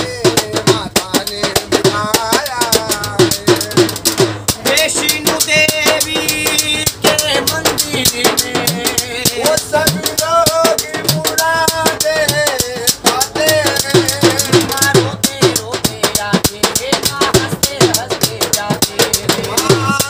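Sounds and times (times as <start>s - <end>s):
frame drum beat: 0.0s - 20.0s
man singing devotional song: 0.0s - 20.0s.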